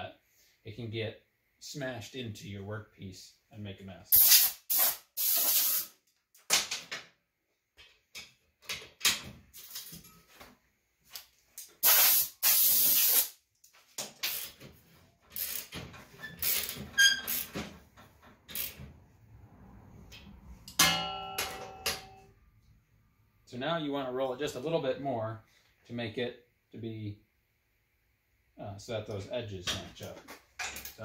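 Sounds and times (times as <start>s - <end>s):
air blow gun hissing: 11.8s - 13.3s
metallic clank: 20.2s - 22.3s.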